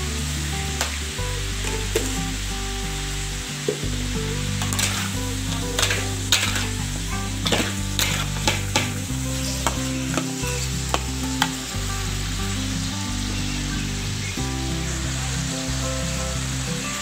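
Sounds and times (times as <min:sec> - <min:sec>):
meat sizzling in a wok: 0:00.1 - 0:17.0
metal spatula scraping a pan: 0:04.6 - 0:10.3.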